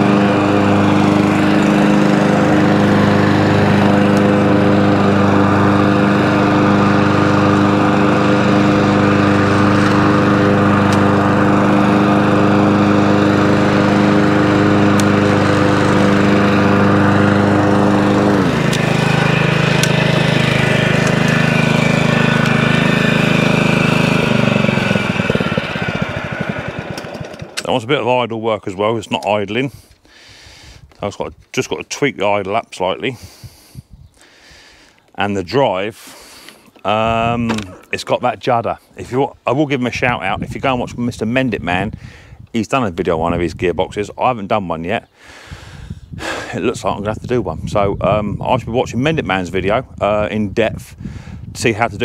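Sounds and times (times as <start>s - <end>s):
mower engine running: 0.0s - 28.2s, 36.2s - 38.3s.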